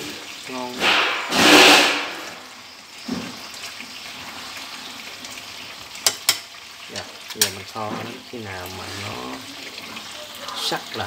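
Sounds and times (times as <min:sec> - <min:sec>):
stew bubbling in a pot: 0:00.0 - 0:11.0
rushing hiss: 0:00.5 - 0:03.3.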